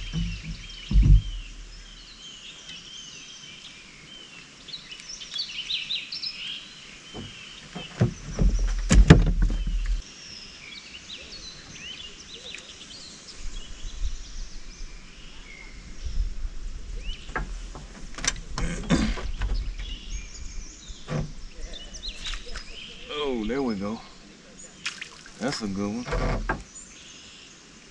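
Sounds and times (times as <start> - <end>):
sharp knocks: 0.0 - 2.0, 7.2 - 10.0
low rumble: 0.0 - 2.1
songbirds chirping: 0.0 - 27.9.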